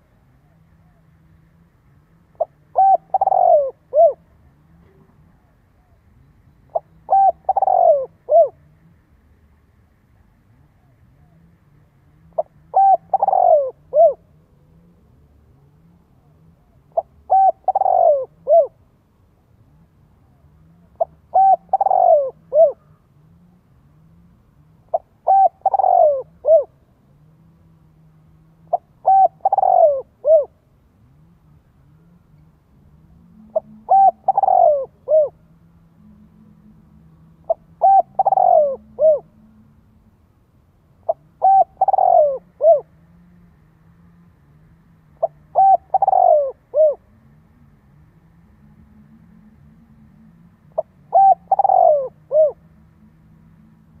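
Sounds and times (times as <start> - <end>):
dove cooing: 2.3 - 8.8, 12.2 - 18.8, 20.3 - 23.5, 24.8 - 26.9, 28.6 - 30.6, 32.9 - 39.7, 41.0 - 43.4, 45.1 - 47.4, 48.6 - 54.0.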